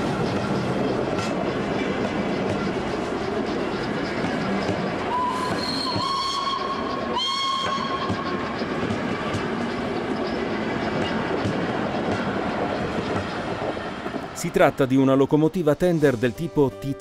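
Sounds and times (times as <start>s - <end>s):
train wheels clattering on rails: 0.0s - 15.8s
steam locomotive whistle blasts: 5.1s - 8.2s.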